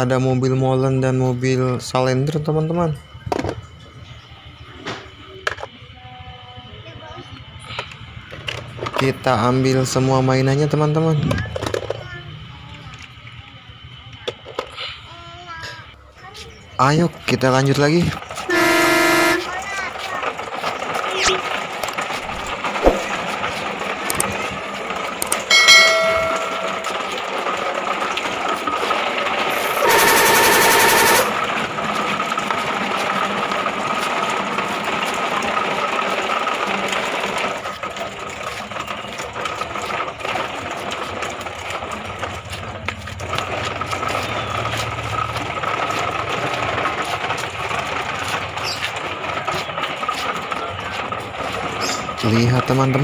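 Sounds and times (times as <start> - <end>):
toy truck wheels rattling on bricks: 7.8 - 13.1, 16.2 - 53.0
loud buzzing tone: 18.5 - 19.5, 29.5 - 31.6.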